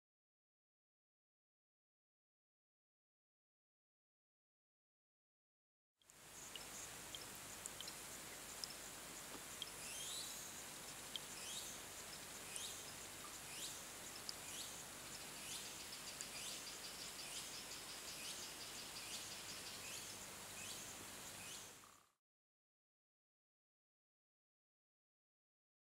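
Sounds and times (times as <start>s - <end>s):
steady low hiss: 6.1s - 22.1s.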